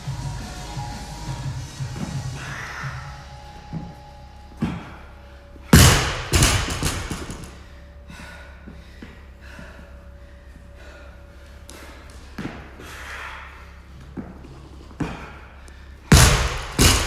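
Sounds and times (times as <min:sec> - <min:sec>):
barbell thudding on rubber floor: 0:05.8 - 0:07.5, 0:16.1 - 0:17.0.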